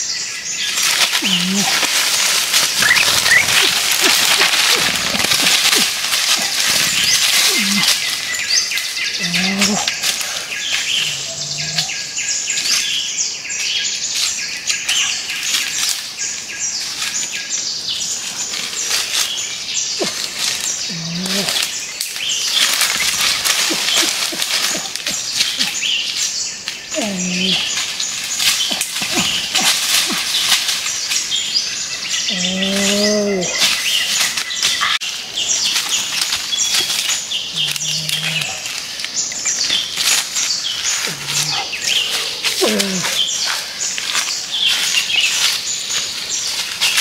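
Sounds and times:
birds chirping: 0.0 - 47.0
short low bird calls: 0.8 - 12.8, 19.8 - 26.2, 32.1 - 46.6.

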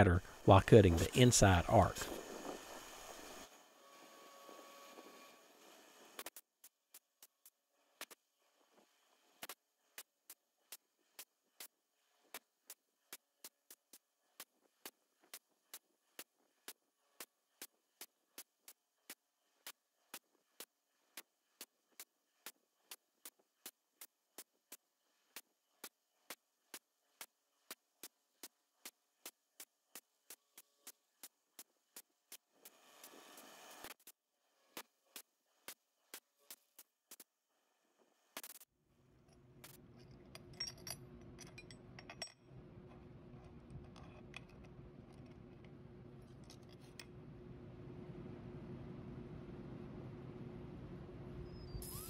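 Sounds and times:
faint steady hum: 39.0 - 52.0
light metallic clinks: 39.9 - 42.4.

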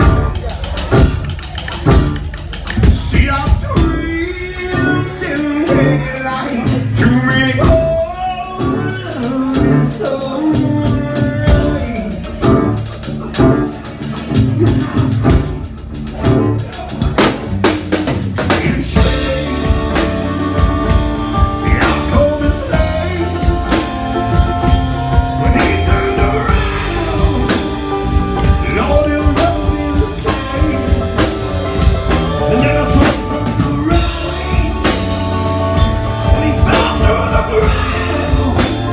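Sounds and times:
drum kit: 0.0 - 38.9
man singing into microphone: 2.8 - 12.8, 18.5 - 35.5, 36.2 - 38.9.

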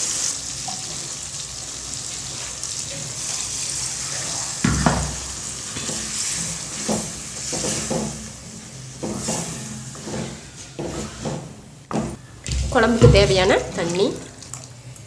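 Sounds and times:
paste sizzling in a pan: 0.0 - 11.6
wooden spatula scraping a pan: 5.4 - 12.2.

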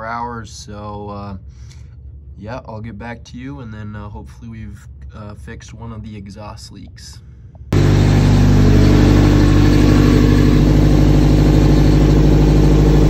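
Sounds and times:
car engine running steadily: 7.5 - 13.0.

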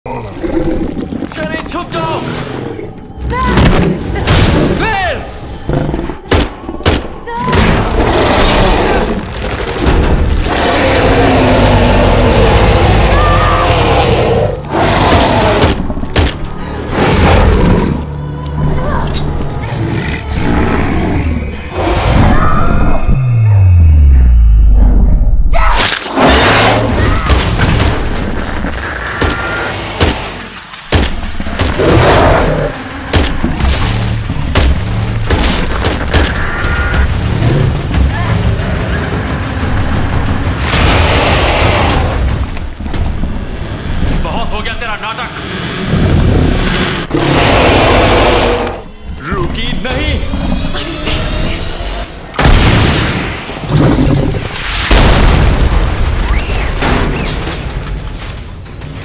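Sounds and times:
low drone of film score: 0.1 - 59.0
explosion with rolling booms: 52.4 - 57.5.

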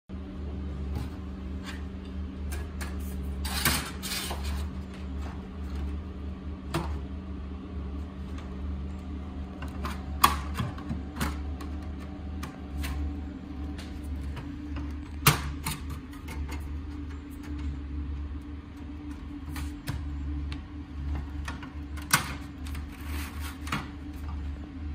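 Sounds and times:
steady low hum: 0.1 - 24.9
rustling scrape of sheet metal: 3.0 - 4.7, 22.8 - 23.8.

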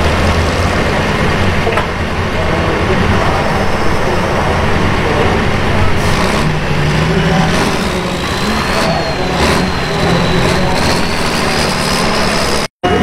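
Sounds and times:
diesel tractor revving hard: 0.0 - 12.7
high whine rising in pitch: 2.9 - 13.0.

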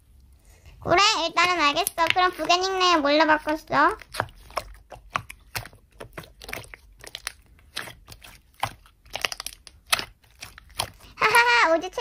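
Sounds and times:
slime sticky clicks and crackles: 4.0 - 11.1.

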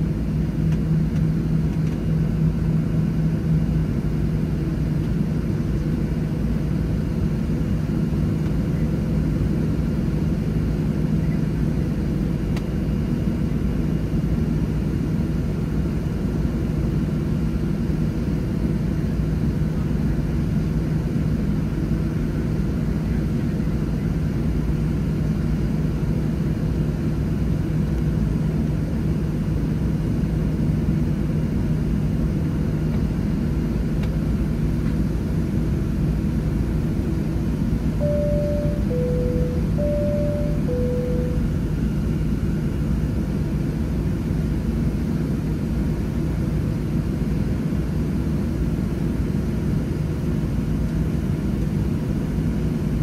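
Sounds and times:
airplane cabin rumble and hum: 0.0 - 53.0
constant droning tone: 38.0 - 41.6.

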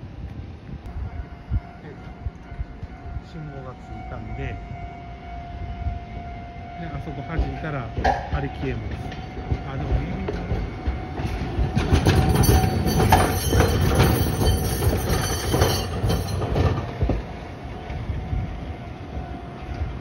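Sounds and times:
tram wheels knocking on rail joints: 7.0 - 18.4
high metallic wheel squeal: 11.8 - 16.8.

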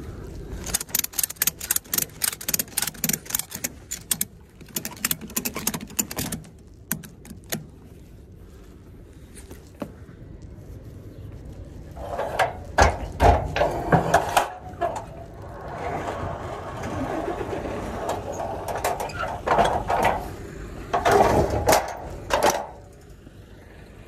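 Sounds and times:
rough scraping: 11.7 - 20.4.

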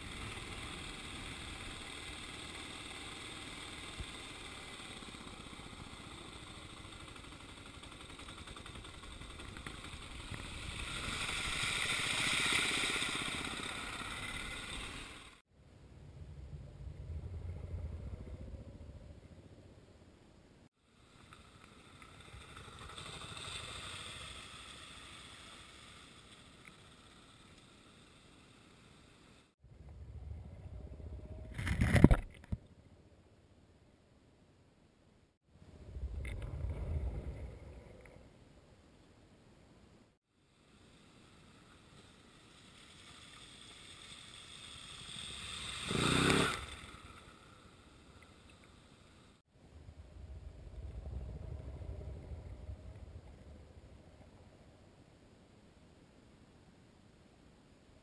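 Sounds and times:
motorcycle riding through water: 0.0 - 15.4, 42.5 - 47.5
wheels splashing through water: 0.0 - 15.4, 40.8 - 49.4.

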